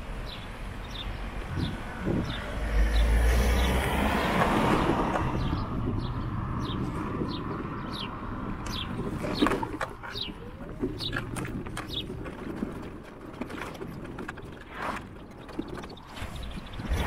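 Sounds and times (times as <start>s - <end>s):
car driving past: 1.6s - 5.7s.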